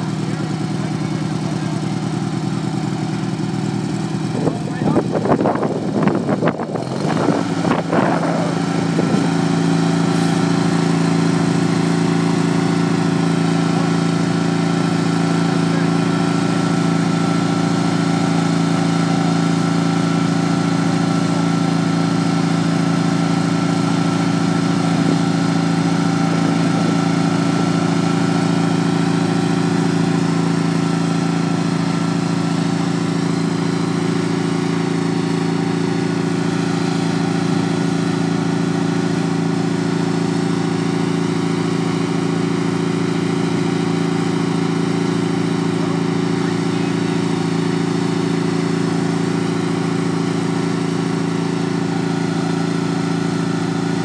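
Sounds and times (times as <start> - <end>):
lawn tractor engine running: 0.0 - 54.0.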